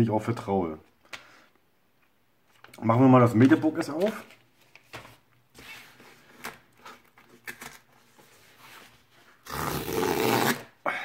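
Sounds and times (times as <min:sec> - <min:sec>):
cardboard tear strip ripping: 0:09.4 - 0:10.7.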